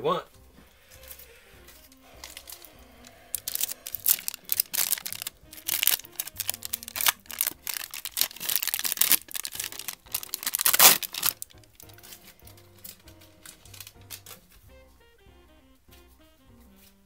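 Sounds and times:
foil wrapper tearing and crinkling: 0.8s - 14.6s.

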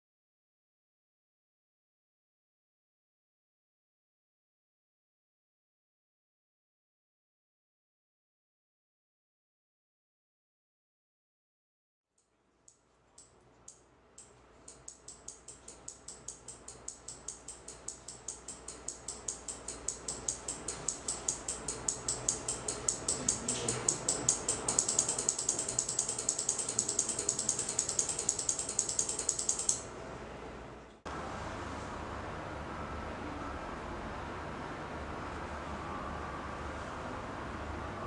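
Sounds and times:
sharp ticks: 12.7s - 29.8s.

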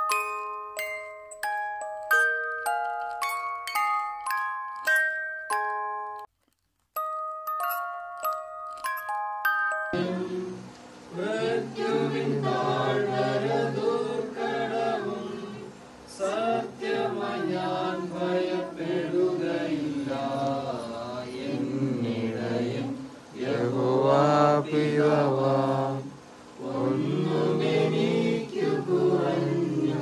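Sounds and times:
voices chanting a prayer: 10.0s - 30.0s.

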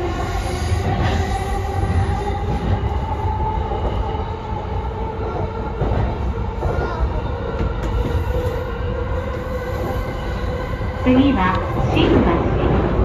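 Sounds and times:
train hum: 0.0s - 13.0s
train wheels rumbling on rail: 0.0s - 13.0s.

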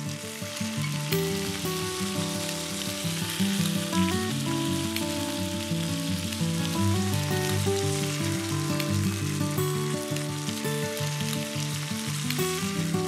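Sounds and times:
sausages sizzling in a pan: 0.0s - 13.0s.

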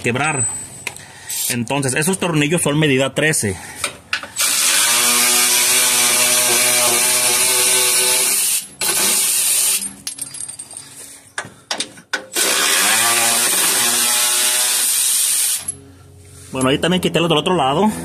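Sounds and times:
electric ratchet motor whine: 4.4s - 9.8s, 12.4s - 15.8s.

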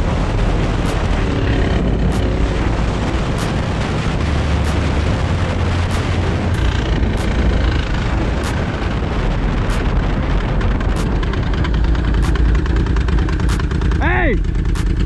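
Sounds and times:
motorcycle engine running: 0.0s - 15.0s
wind buffeting microphone: 0.0s - 15.0s.

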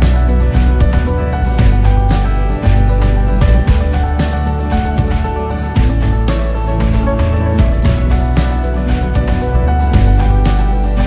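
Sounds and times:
heavy bass line: 0.0s - 11.0s
music with steady beat: 0.0s - 11.0s.

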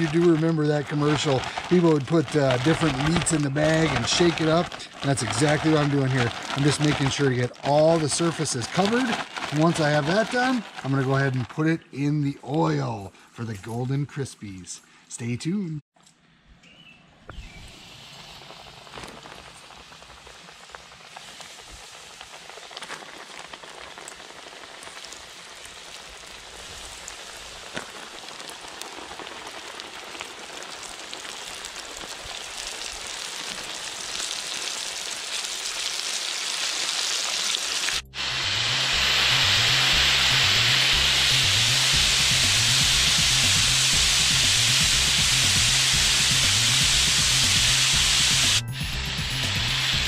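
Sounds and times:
fish frying in hot oil: 0.0s - 10.9s, 17.7s - 48.6s
oil popping: 0.0s - 11.9s, 17.3s - 48.5s
background music with steady beat: 38.0s - 50.0s.

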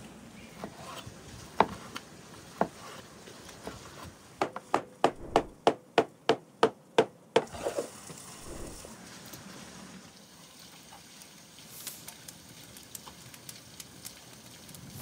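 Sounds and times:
cleaver chopping on wooden board: 4.4s - 7.1s
single knocks: 5.1s - 5.6s.

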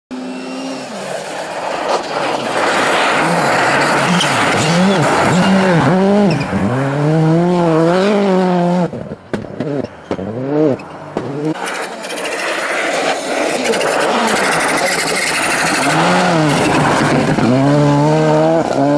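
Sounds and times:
rally car engine revving: 0.1s - 18.9s
tyres hissing on snow: 0.8s - 5.7s.

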